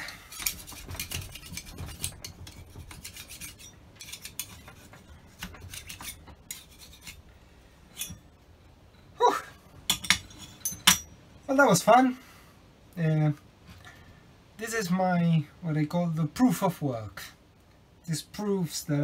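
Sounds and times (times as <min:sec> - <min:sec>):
scraper scraping metal: 0:00.0 - 0:07.3.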